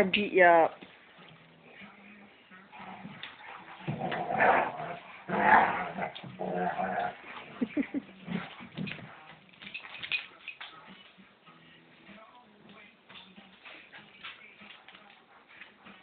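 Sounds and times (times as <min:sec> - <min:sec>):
dogs growling and snarling: 0:02.6 - 0:09.4.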